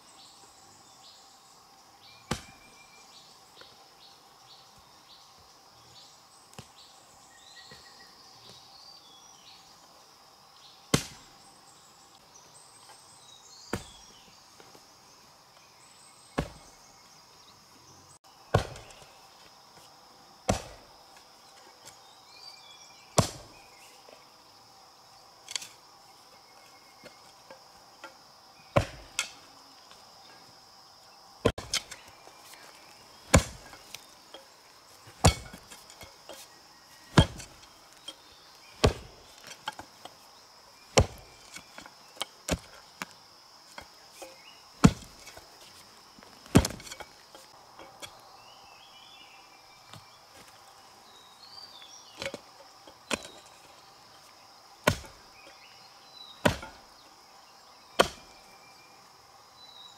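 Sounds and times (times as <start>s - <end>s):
insects droning: 0.0s - 59.9s
digging tool striking soil: 2.3s - 2.6s, 13.7s - 14.1s, 16.4s - 16.7s, 18.5s - 19.1s, 20.5s - 20.9s, 23.2s - 23.6s, 25.5s - 25.8s, 28.0s - 29.4s, 31.4s - 34.5s, 35.1s - 36.5s, 37.1s - 40.2s, 40.9s - 45.4s, 46.4s - 48.2s, 52.1s - 53.5s, 54.8s - 55.3s, 56.4s - 56.8s, 57.9s - 58.4s.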